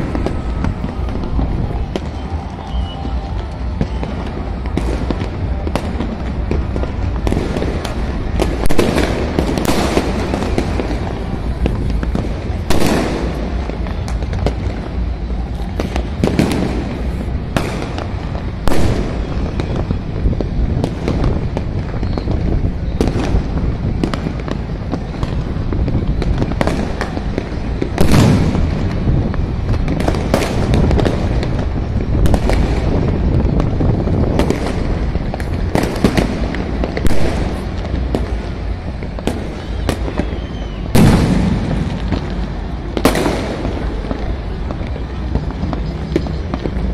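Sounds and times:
firecrackers banging: 0.0s - 46.9s.

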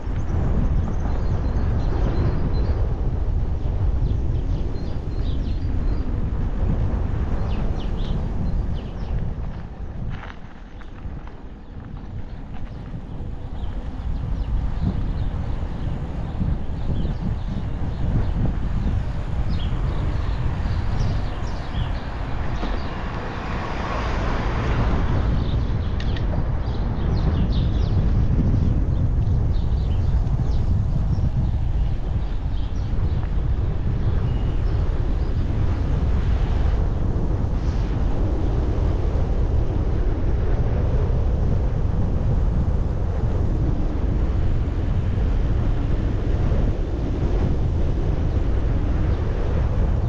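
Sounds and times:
wind rumbling on microphone: 0.0s - 50.0s
birds chirping: 3.6s - 36.4s.

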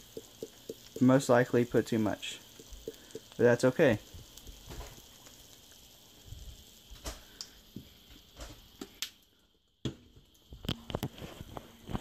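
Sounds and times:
pepper shaker clicks and taps: 0.0s - 1.2s, 2.4s - 3.4s.

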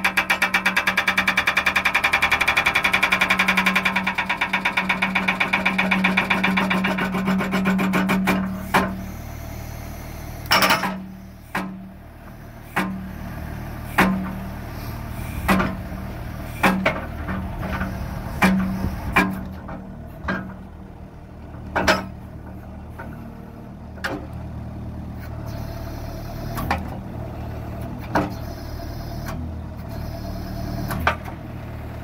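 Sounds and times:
hydraulic breaker hammering: 0.0s - 9.0s, 10.5s - 11.8s, 13.9s - 14.4s, 15.4s - 15.9s, 16.6s - 20.6s
skid steer engine running: 0.0s - 32.0s.

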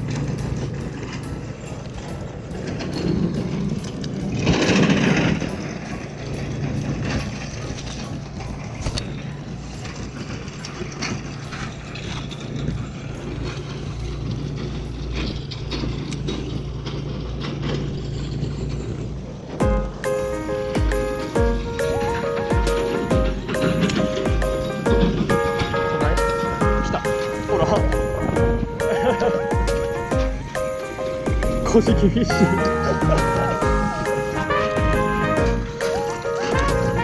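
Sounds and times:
low mechanical hum: 0.0s - 37.0s
rushing surge: 0.0s - 37.0s.

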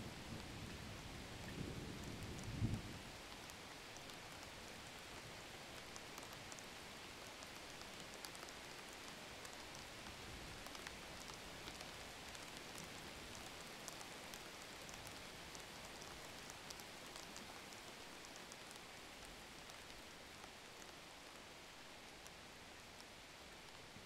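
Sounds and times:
faint steady hiss: 0.0s - 24.0s
soft scattered ticks: 0.1s - 24.0s.

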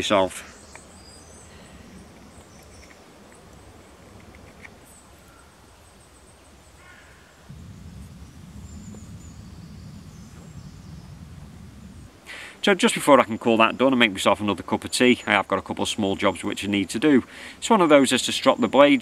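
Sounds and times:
faint bird chirps: 0.3s - 11.4s
low rumble: 7.5s - 12.2s.

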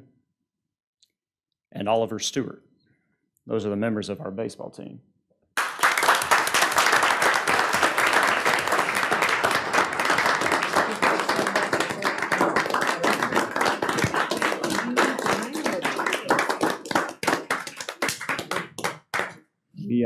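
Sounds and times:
people applauding: 5.6s - 19.4s.

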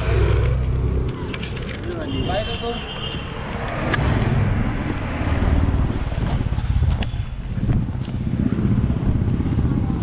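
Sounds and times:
street traffic: 0.0s - 10.0s
handheld camera handling rumble: 0.2s - 2.0s, 5.9s - 8.4s.

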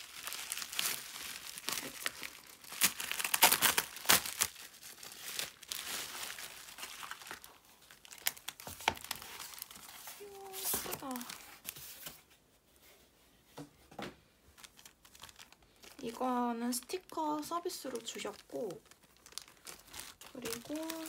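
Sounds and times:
bubble-wrap mailer crinkling: 0.0s - 12.2s, 14.5s - 21.0s.

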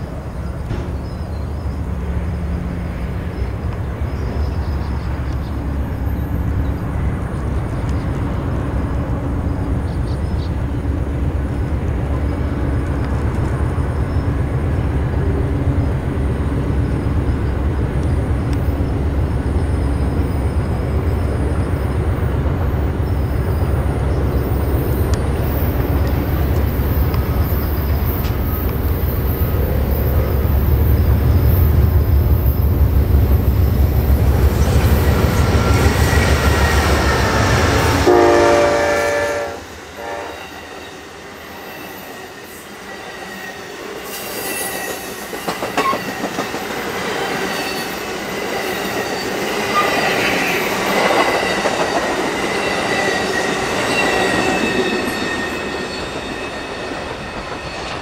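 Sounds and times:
diesel train rumbling past: 0.0s - 58.0s
locomotive air horn: 38.0s - 40.4s.

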